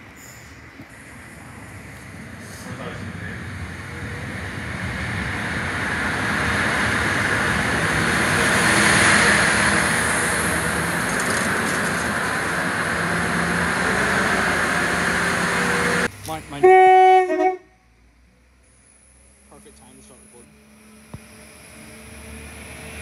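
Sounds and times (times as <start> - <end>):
train wheels on rail: 0.0 - 16.4
train engine noise: 0.0 - 23.0.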